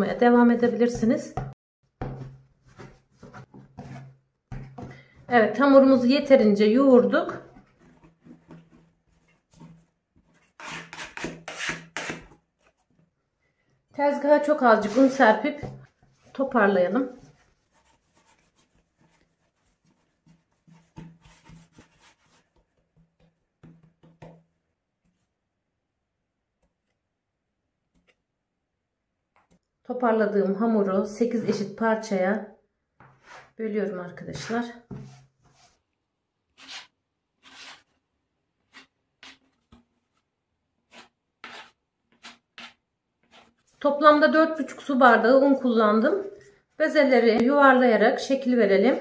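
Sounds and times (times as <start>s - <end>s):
dough scraper scraping countertop: 2.0s - 5.0s, 7.6s - 12.4s, 33.0s - 33.6s, 36.6s - 38.0s, 38.7s - 39.8s, 40.9s - 44.6s.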